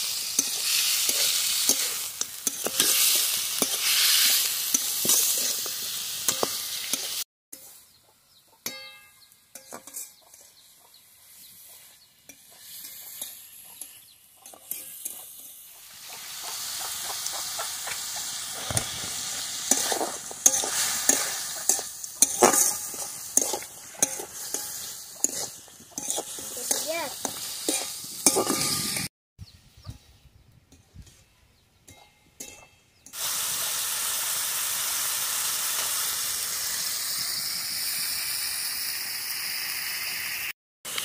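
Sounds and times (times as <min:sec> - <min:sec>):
chicken sizzling in oil: 0:00.0 - 0:07.9, 0:09.6 - 0:29.1, 0:33.1 - 0:41.0
metal spatula scraping pan: 0:00.1 - 0:05.7, 0:09.5 - 0:10.6, 0:11.8 - 0:15.6, 0:19.6 - 0:29.1.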